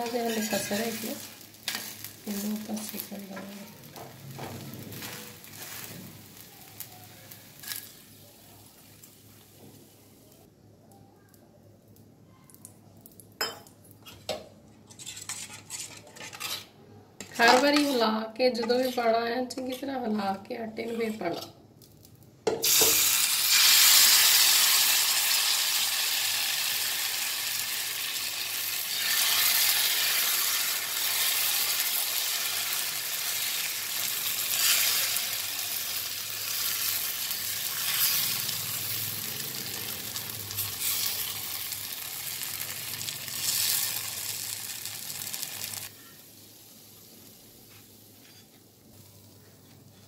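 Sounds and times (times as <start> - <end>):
batter sizzling on griddle: 0.0 - 10.4, 21.8 - 50.0.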